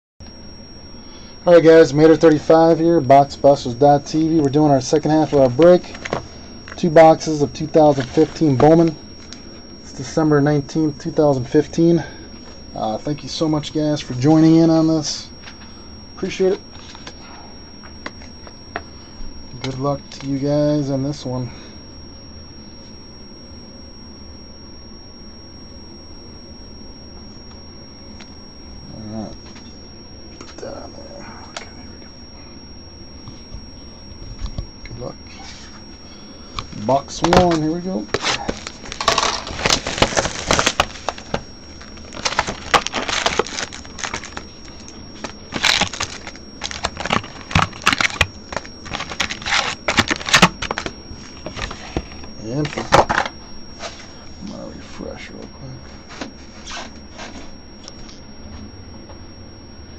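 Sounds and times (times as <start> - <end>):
high-pitched electronic whine: 0.2 - 59.9
low hum and hiss: 0.2 - 59.9
cardboard and foil rustling: 38.2 - 52.1.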